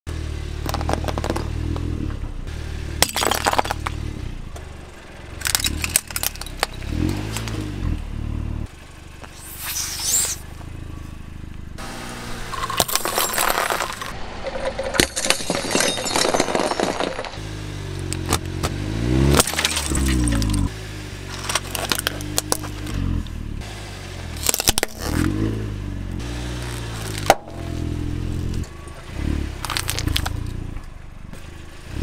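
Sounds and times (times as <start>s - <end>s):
car engine idling: 0.1s - 14.9s, 17.4s - 32.0s
glass tubes shattering: 3.0s - 3.9s, 5.4s - 6.9s, 12.5s - 17.4s, 19.4s - 20.7s
plastic toys breaking: 3.0s - 3.9s, 5.4s - 6.8s, 12.6s - 17.4s, 19.4s - 20.7s, 21.4s - 22.8s, 24.4s - 25.0s, 29.6s - 30.4s.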